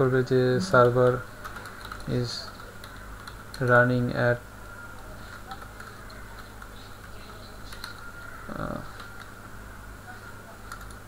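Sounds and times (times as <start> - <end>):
steady low hum: 0.0 - 11.0
computer keyboard keystrokes: 1.0 - 3.8, 5.3 - 8.1, 10.7 - 11.0.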